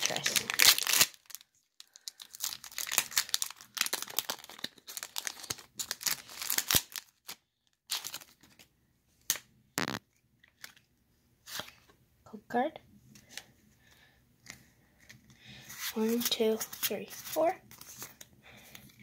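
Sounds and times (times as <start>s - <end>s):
foil wrapper crinkling and tearing: 0.0s - 8.6s
cards rustling: 0.0s - 8.7s, 14.4s - 19.0s.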